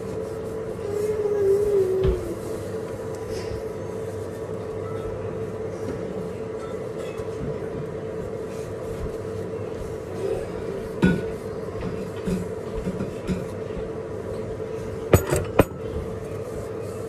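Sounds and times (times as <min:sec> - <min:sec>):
mechanical hum: 0:00.0 - 0:17.0.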